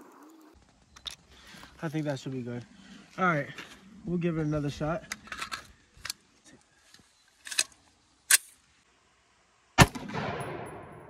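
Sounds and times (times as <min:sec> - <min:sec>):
loud gunshot with echo: 0:09.8 - 0:11.0.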